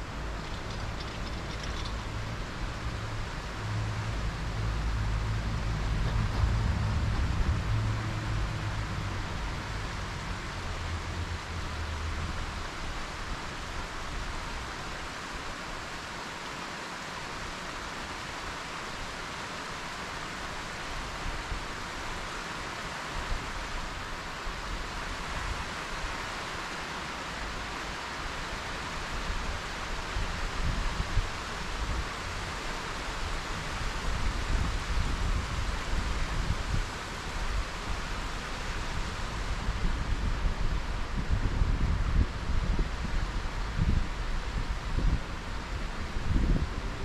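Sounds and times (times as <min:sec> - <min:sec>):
low rumbling gusts: 0:00.0 - 0:14.7, 0:29.0 - 0:47.0
wind rushing on microphone: 0:00.0 - 0:14.7, 0:28.9 - 0:47.0.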